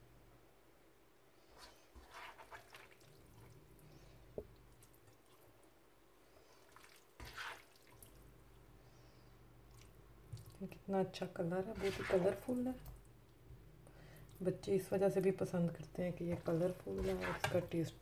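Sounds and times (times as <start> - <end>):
pasta squelching and rustling: 1.4 - 8.7, 11.6 - 13.1, 16.2 - 18.0.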